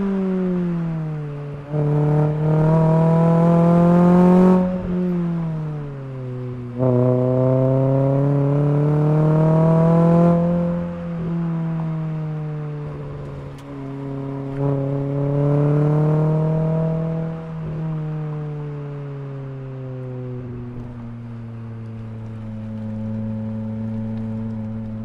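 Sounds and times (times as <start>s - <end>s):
car engine revving: 0.0s - 18.5s.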